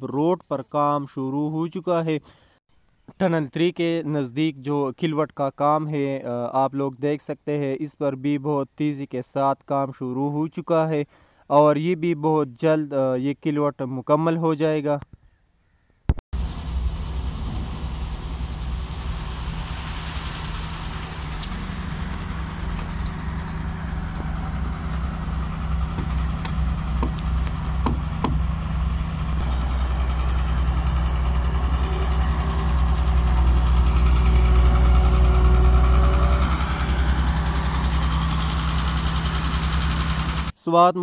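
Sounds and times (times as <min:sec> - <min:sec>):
diesel machinery engines humming: 0:16.4 - 0:40.6.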